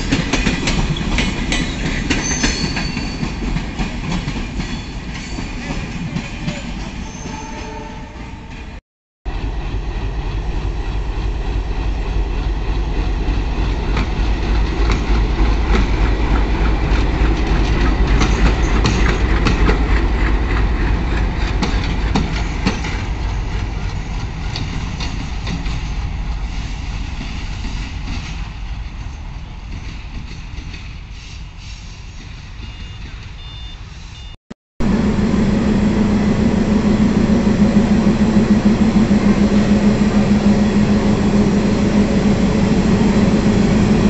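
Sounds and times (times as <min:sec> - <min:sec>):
locomotive engine rumble: 0:34.8 - 0:44.0.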